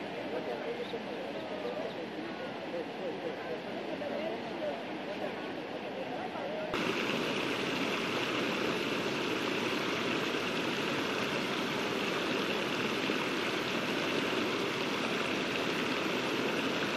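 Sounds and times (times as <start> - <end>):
river water pouring over weir: 6.8 - 16.9.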